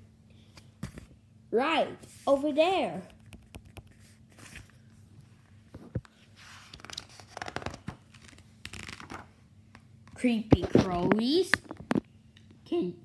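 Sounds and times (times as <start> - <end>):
paper pages rustling: 5.9 - 9.3.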